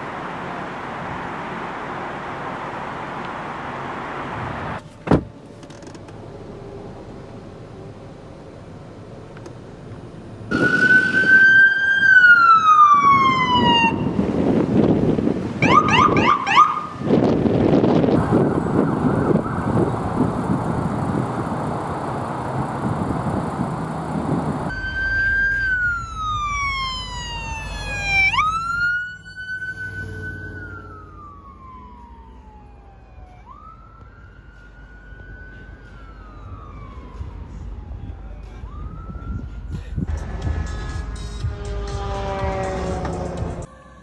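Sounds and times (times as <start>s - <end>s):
road and engine noise: 0.0s - 44.0s
ambulance siren wailing: 10.5s - 14.2s, 15.6s - 17.0s, 18.1s - 20.4s, 24.7s - 39.8s, 40.4s - 43.7s.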